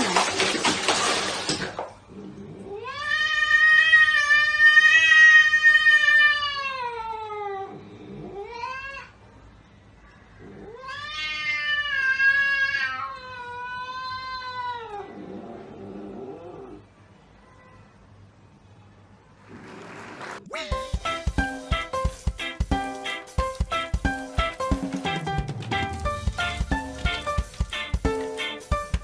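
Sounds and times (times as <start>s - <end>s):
cat yowling: 2.7s - 9.1s, 10.6s - 15.2s.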